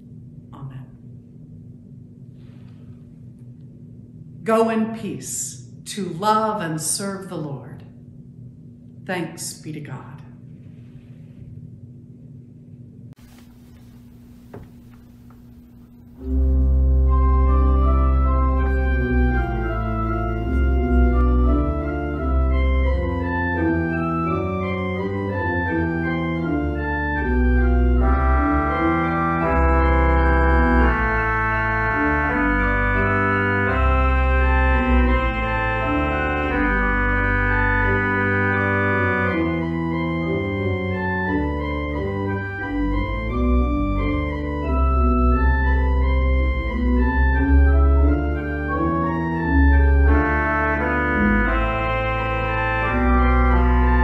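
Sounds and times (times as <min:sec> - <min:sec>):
church organ playing: 0:13.3 - 0:54.0.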